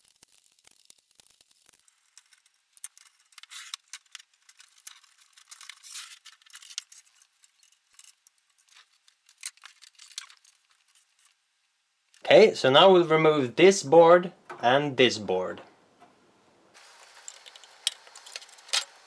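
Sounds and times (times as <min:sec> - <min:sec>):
hands handling metal chassis: 0:02.2 - 0:11.4.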